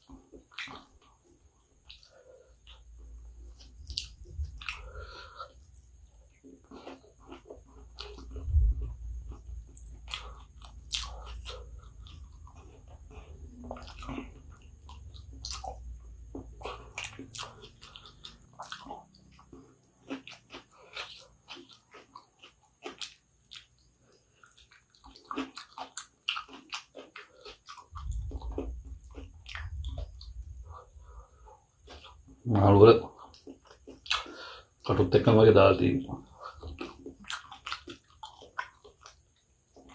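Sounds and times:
person chewing food: 0.0 - 35.0, 36.2 - 39.9
wet mouth clicks and smacks: 1.8 - 2.1, 3.5 - 6.0, 22.9 - 30.8, 36.5 - 39.9
soft low rumble: 2.6 - 6.2, 7.5 - 18.5, 27.9 - 32.4.

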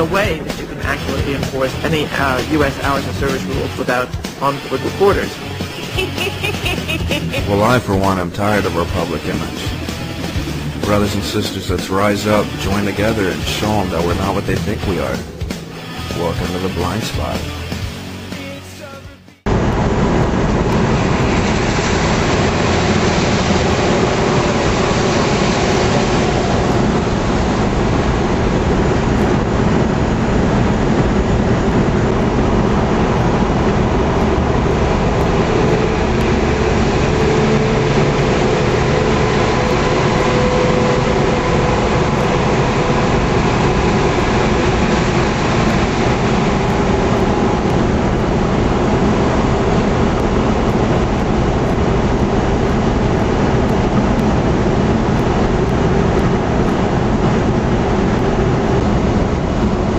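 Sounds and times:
truck engine: 0.0 - 18.8, 19.5 - 59.9
wind noise: 19.5 - 59.9.

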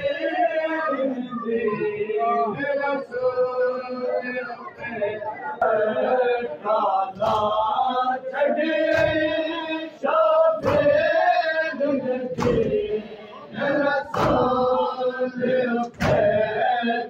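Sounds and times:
crowd chest-beating: 0.0 - 17.0
men chanting in unison: 0.0 - 17.0.

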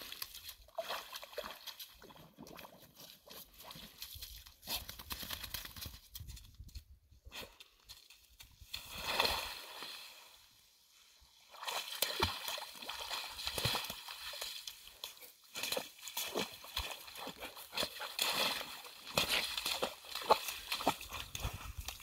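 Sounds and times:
dog sloshing in slush water: 0.0 - 5.7, 11.5 - 22.0.

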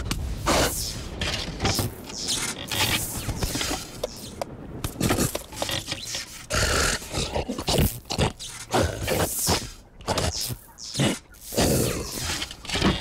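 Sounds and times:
wooden log scraping and knocking: 0.0 - 6.5.

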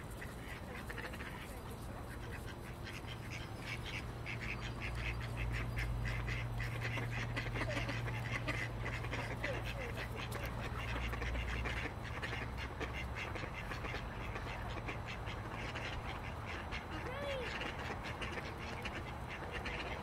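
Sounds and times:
ducks quacking: 0.0 - 20.0
steady background noise: 0.0 - 20.0.

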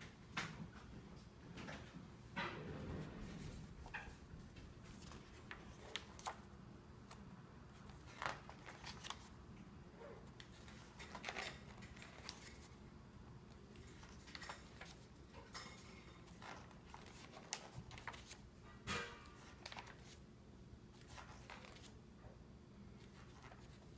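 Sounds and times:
paper pages rustling and flipping: 2.8 - 6.5, 7.1 - 9.4, 10.2 - 12.8, 13.7 - 15.2, 16.2 - 18.5, 19.4 - 20.2, 20.9 - 22.0, 23.0 - 23.9.

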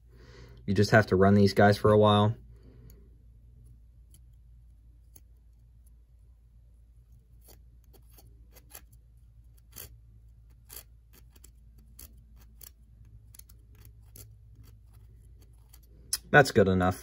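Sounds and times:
steady low hum: 0.0 - 17.0
pick clicking and scraping gears: 2.8 - 6.3, 7.0 - 16.4.

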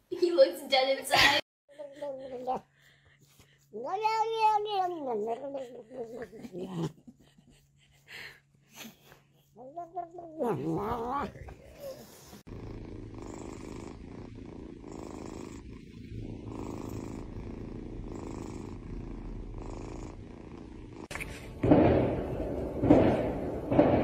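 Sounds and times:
kitten purring: 9.5 - 21.1.

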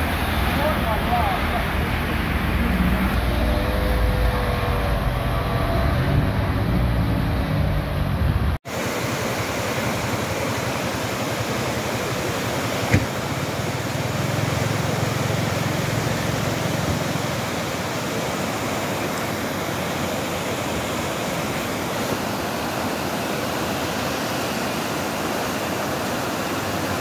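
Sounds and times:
car driving on wet street: 0.0 - 8.6, 11.4 - 21.6
floodwater rushing: 0.0 - 27.0
brief knock: 12.9 - 13.1.

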